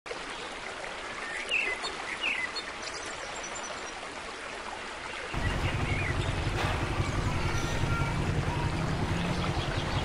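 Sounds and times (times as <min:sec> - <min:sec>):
bird chirps: 0:05.4 - 0:10.0.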